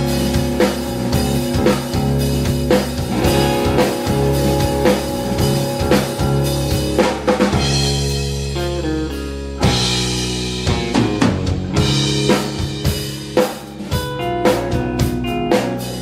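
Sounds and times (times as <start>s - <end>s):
run of falling notes: 0.0s - 13.0s
live band playing: 0.0s - 16.0s.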